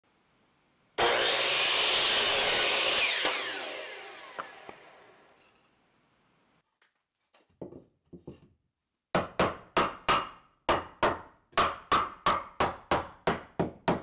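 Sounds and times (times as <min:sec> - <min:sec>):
saw blade spinning down whine: 0:01.0 - 0:05.4
miter saw cutting wood: 0:01.0 - 0:05.5.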